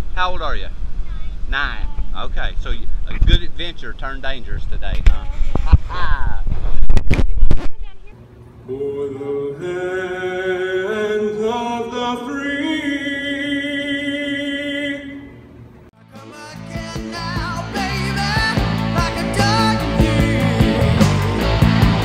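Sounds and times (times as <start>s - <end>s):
rock song with guitar: 16.0s - 22.0s.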